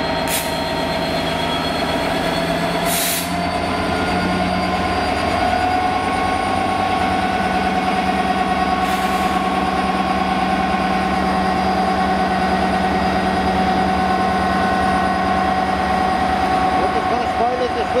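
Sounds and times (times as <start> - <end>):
diesel locomotive engine running: 0.0 - 18.0.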